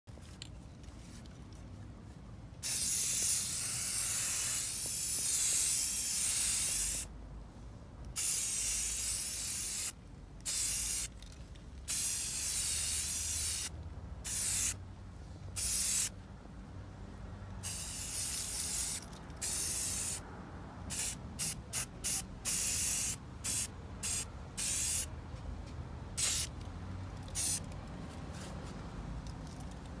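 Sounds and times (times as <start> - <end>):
aerosol spray can hissing: 2.6 - 7.1, 8.2 - 9.9, 15.6 - 16.1, 17.6 - 20.2, 27.4 - 27.6.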